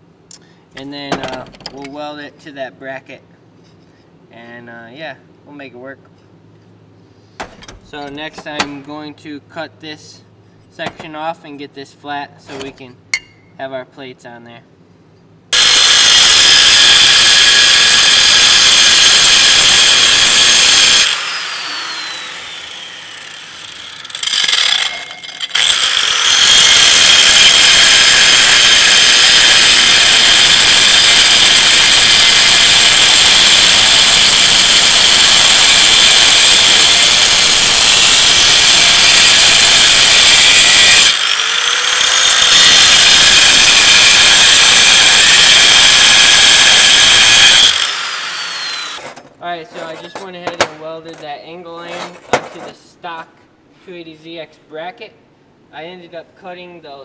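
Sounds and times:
angle grinder cutting steel: 0:15.6 - 0:49.1.

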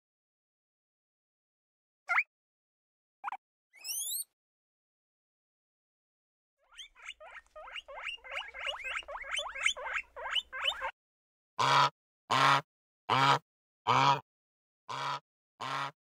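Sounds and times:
high squeaky animal chirps: 0:02.1 - 0:02.3, 0:03.2 - 0:04.3, 0:06.7 - 0:10.9.

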